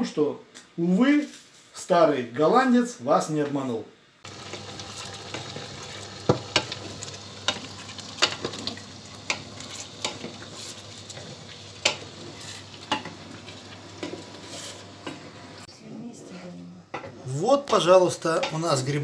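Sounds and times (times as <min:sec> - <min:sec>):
mushrooms sizzling in a pan: 0:04.2 - 0:15.7.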